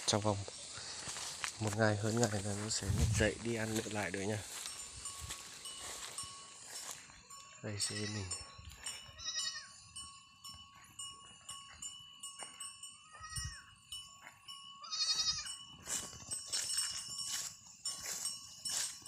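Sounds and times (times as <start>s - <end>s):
light clinking and jingling: 0.1s - 19.0s
goats bleating: 7.8s - 8.4s, 9.1s - 9.7s, 14.8s - 15.5s.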